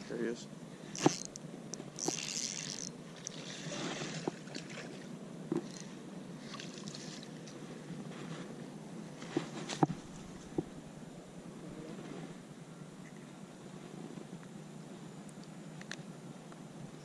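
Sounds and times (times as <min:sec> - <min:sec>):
fishing reel handling clicks: 0:00.9 - 0:03.4
sleeve brushing against camera: 0:07.7 - 0:08.6, 0:09.2 - 0:10.6.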